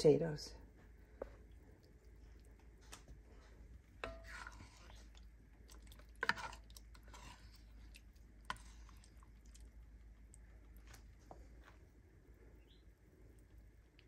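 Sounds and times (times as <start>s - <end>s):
ladle scooping sauce: 4.0s - 11.4s.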